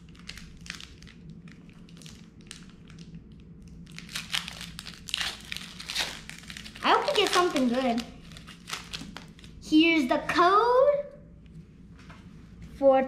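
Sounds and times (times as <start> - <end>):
foil wrapper crinkling: 0.0 - 9.6.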